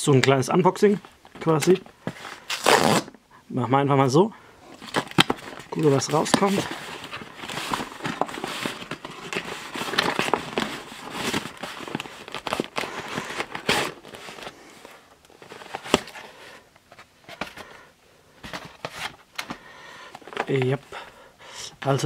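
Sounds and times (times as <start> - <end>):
rustles and knocks of handling: 0.9 - 2.4, 4.7 - 21.0
cardboard tearing and crinkling: 4.8 - 14.6, 15.3 - 16.3.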